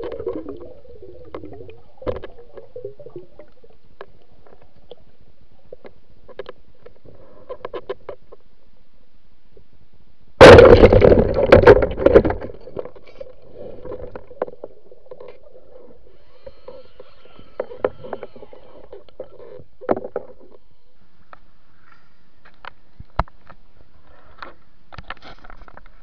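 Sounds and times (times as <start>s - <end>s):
faint underwater hum: 12.8s - 24.9s.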